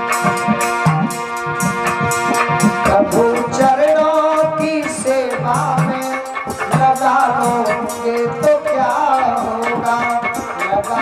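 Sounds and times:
hand percussion beat: 0.0 - 11.0
sustained instrumental notes: 0.0 - 11.0
man singing: 2.8 - 11.0.

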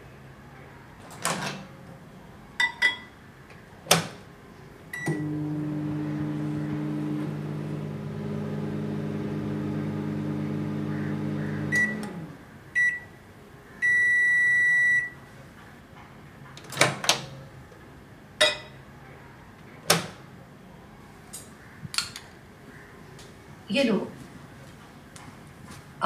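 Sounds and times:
microwave beeps: 4.9 - 6.4, 8.8 - 12.2, 12.8 - 13.2, 13.8 - 15.2
microwave oven humming: 4.9 - 13.2.

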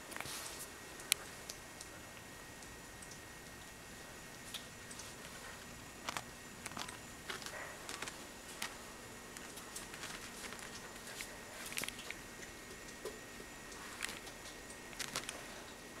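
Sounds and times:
faint steady hiss: 0.0 - 16.0
claws scrabbling over fabric: 5.0 - 12.0.

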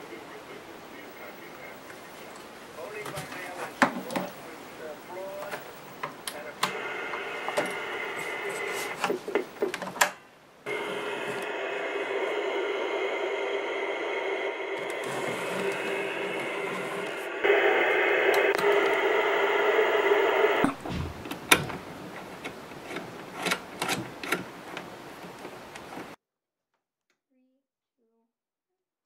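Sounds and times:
tv static hiss with buzz: 0.0 - 26.2
cables and plugs clicking: 18.1 - 26.0.

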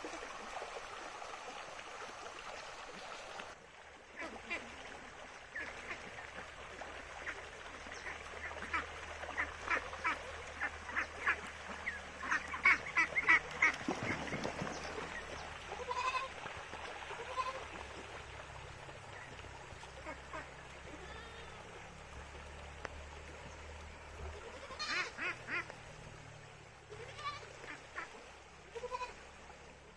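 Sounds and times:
ducks quacking: 7.2 - 14.6, 24.4 - 25.8, 27.1 - 28.2
goat bleats: 15.7 - 16.3, 17.2 - 17.7, 20.9 - 21.7, 24.4 - 25.2, 26.9 - 27.5, 28.7 - 29.2.

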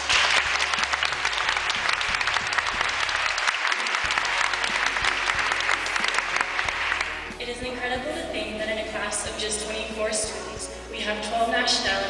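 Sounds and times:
crowd applauding: 0.0 - 7.4.

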